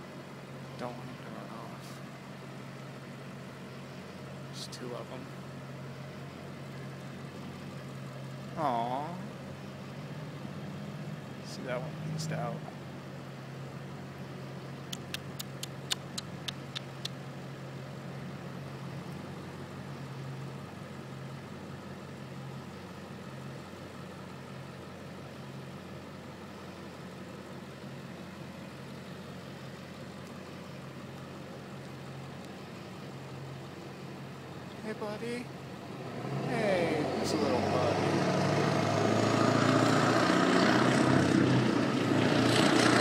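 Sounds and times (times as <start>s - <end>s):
low mechanical hum: 0.0s - 37.0s
sharp clicks: 14.9s - 17.2s.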